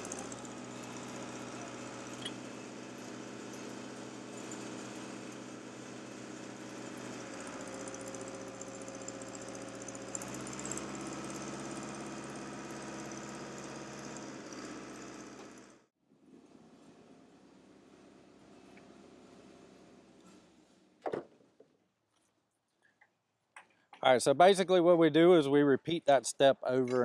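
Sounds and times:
held whine: 0.0s - 15.7s
engine running: 0.0s - 15.9s.

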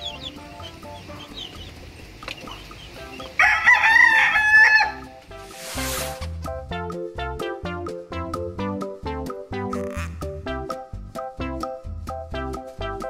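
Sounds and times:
chicks peeping: 0.0s - 5.1s
rooster crowing: 3.3s - 5.1s
short rushing sound: 5.4s - 6.3s.

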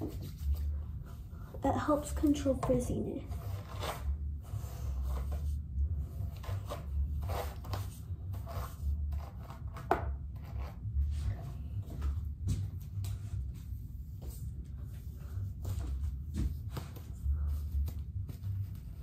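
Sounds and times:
low steady rumble: 0.0s - 19.0s.

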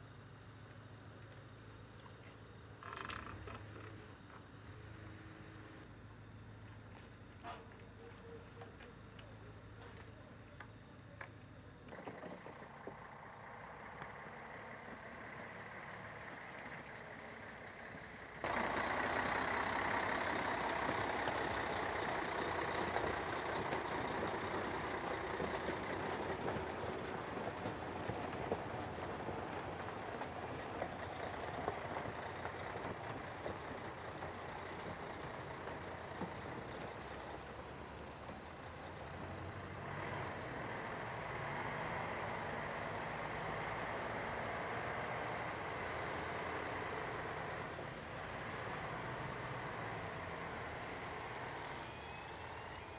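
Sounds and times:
quiet vehicle hum: 0.0s - 52.9s
heavy truck engine running: 12.3s - 52.9s.

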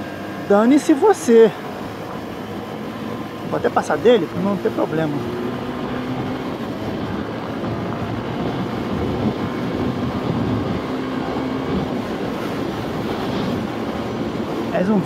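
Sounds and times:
motorcycle engine running: 0.0s - 15.0s
wind rushing: 5.2s - 15.0s.

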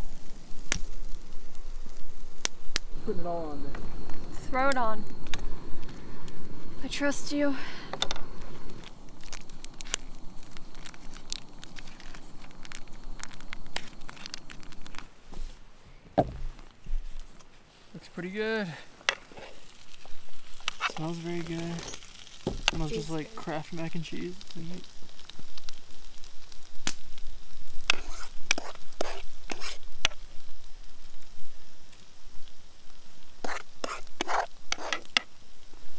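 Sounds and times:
faint steady hiss: 0.0s - 35.9s
foil pouch crinkling: 8.7s - 15.2s.

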